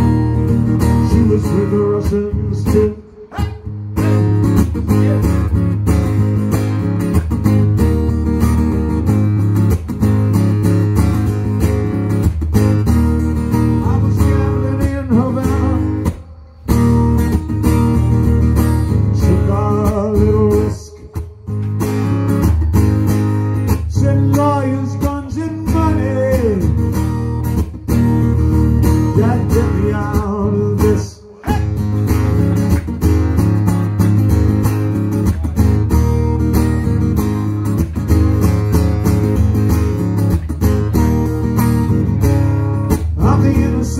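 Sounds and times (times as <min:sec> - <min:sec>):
acoustic guitar strumming: 0:00.0 - 0:43.9
man singing: 0:00.8 - 0:05.6, 0:13.6 - 0:16.8, 0:18.9 - 0:21.6, 0:23.8 - 0:27.0, 0:29.1 - 0:31.9, 0:43.0 - 0:43.9.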